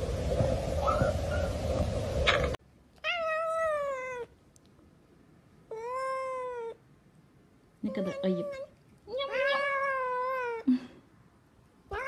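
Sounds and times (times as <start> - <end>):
cat meowing: 3.0 - 4.3, 5.7 - 6.8, 7.9 - 10.7.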